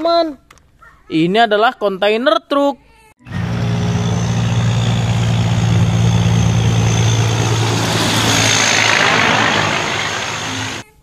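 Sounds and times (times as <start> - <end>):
truck engine drone: 3.3 - 11.0.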